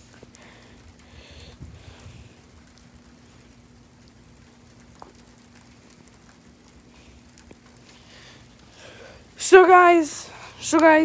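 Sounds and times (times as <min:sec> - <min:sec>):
light ticks of ice: 0:00.0 - 0:09.4, 0:10.3 - 0:11.0.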